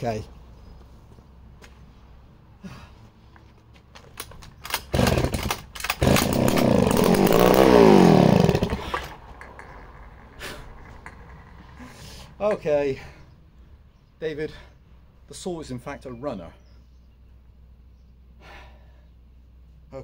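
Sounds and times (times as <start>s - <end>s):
chainsaw starter pull clicks: 4.0s - 9.7s
chainsaw engine running: 4.7s - 9.7s.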